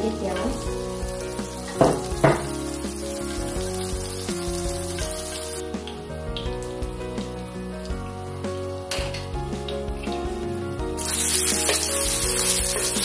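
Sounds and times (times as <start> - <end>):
background music with held notes: 0.0 - 13.0
oil sizzling in a pan: 0.0 - 13.0
sharp knocks: 1.8 - 2.5.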